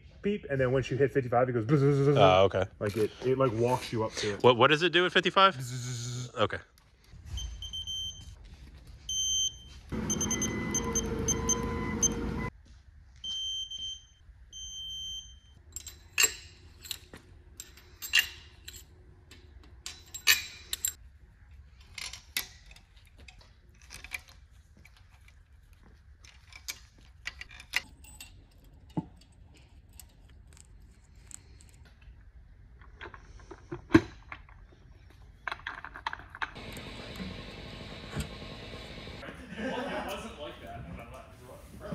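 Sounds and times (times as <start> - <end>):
torque wrench beeping: 9.1 - 12.5
metal pushrods clinking: 15.7 - 21.0.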